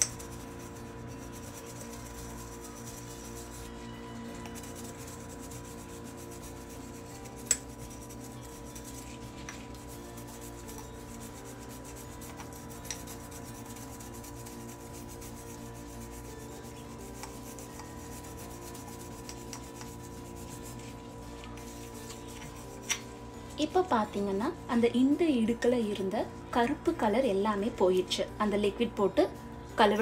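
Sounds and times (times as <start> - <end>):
brush scrubbing metal: 0.0 - 23.0.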